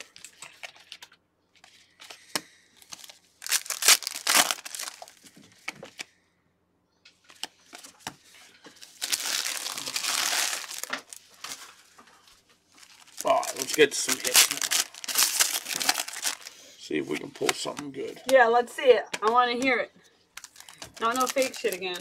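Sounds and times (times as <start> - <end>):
foil wrappers crinkling and tearing: 2.8 - 5.3, 8.7 - 18.4, 20.3 - 22.0.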